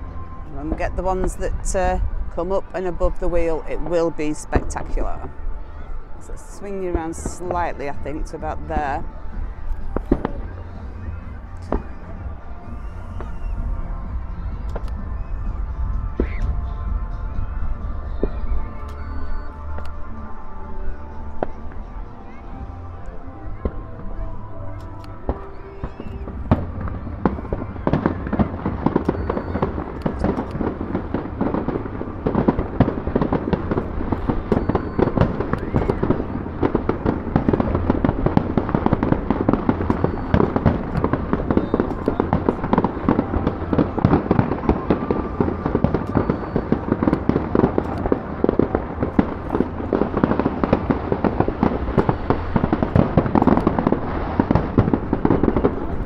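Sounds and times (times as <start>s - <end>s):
fireworks bangs pops and crackles: 0.0s - 20.0s, 24.8s - 56.0s.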